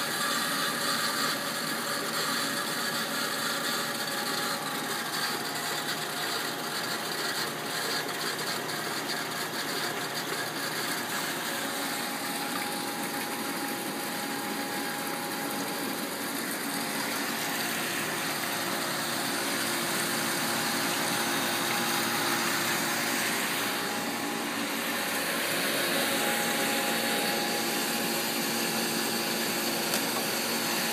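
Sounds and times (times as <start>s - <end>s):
machine pumps and motors whirring: 0.0s - 30.9s.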